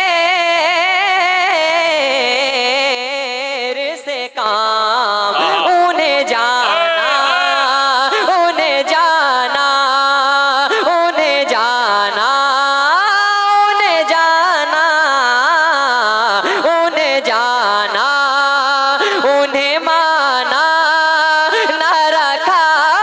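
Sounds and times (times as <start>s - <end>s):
man singing into a microphone: 5.1s - 7.9s.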